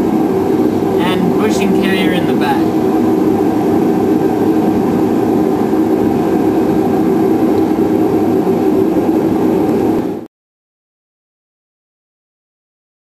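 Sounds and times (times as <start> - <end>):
loud mechanical hum: 0.0 - 10.3.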